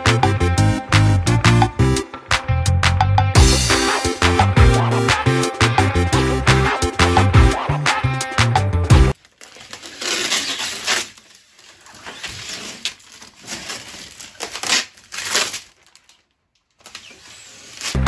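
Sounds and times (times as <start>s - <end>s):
squeegee scraping silkscreen mesh: 9.6s - 14.8s.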